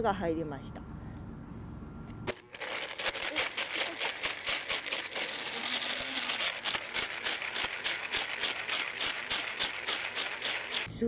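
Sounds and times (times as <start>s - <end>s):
blender crunching shells: 2.3s - 10.9s.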